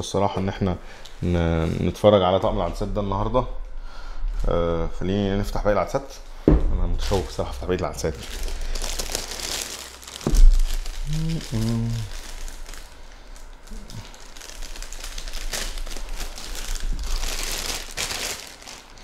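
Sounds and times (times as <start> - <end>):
sharp thump: 6.4 - 7.2
plastic bag crinkling: 7.0 - 19.0.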